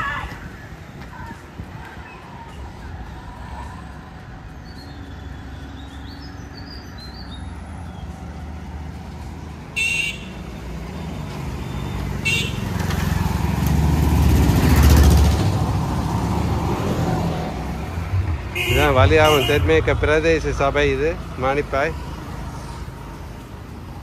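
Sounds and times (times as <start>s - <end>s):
auto-rickshaws passing: 0.0s - 24.0s
motorcycles and scooters passing: 0.1s - 24.0s
horn toots: 9.8s - 10.3s, 12.2s - 12.7s, 18.2s - 20.4s.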